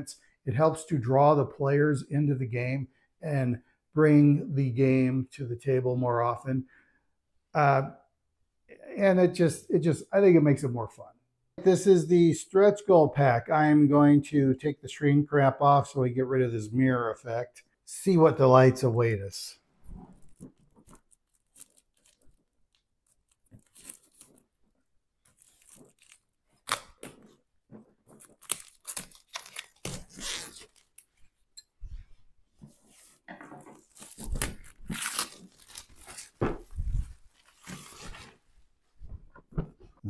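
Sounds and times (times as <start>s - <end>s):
plastic shrink wrap crinkling: 19.9s - 31.5s, 33.8s - 38.5s.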